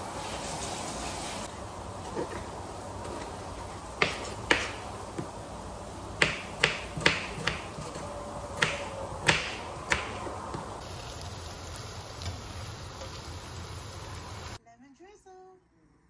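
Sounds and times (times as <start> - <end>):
knife chopping on wooden board: 4.0 - 5.4, 6.2 - 10.8.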